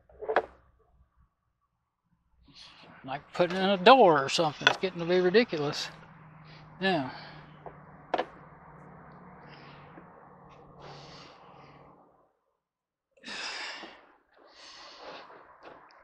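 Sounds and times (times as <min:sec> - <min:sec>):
low hum: 0:02.2 - 0:12.5
man sighing heavily: 0:13.2 - 0:14.0.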